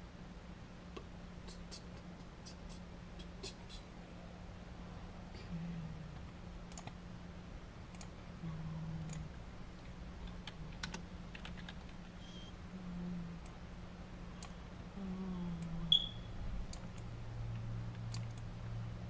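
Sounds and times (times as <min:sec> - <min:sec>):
low steady hum: 0:00.0 - 0:19.0
keyboard keys clicking: 0:10.3 - 0:12.1.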